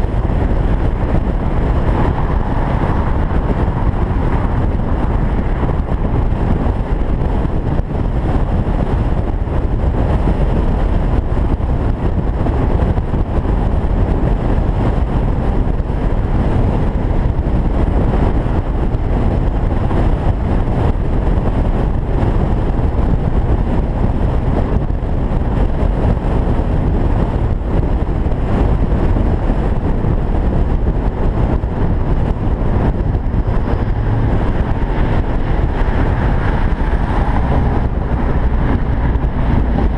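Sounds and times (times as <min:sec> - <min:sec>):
road noise: 0:00.0 - 0:39.9
wind rushing: 0:00.0 - 0:39.9.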